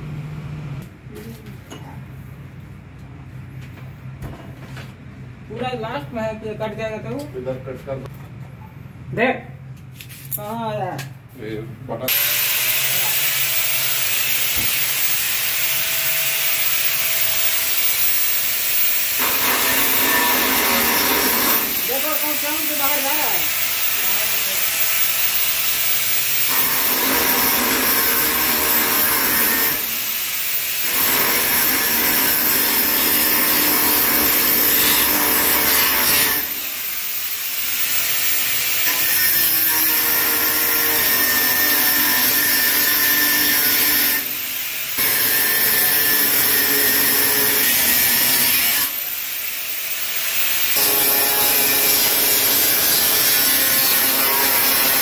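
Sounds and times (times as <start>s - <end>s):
angle grinder cutting steel pipe: 12.1s - 55.0s.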